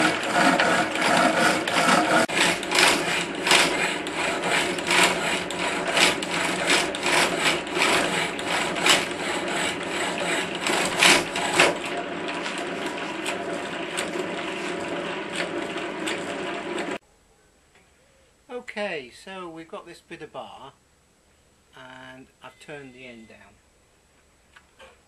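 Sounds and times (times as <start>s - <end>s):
power hacksaw sawing steel: 0.0s - 17.0s.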